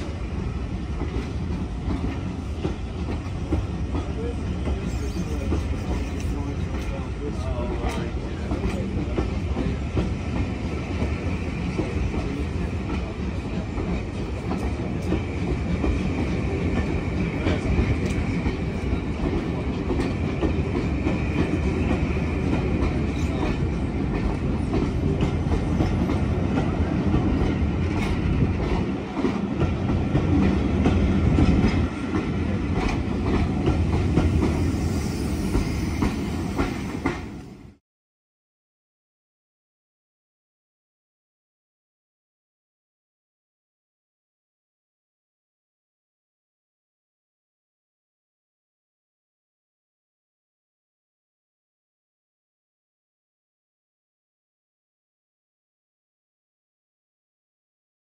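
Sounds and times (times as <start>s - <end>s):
train coaches rumbling past: 0.0s - 37.8s.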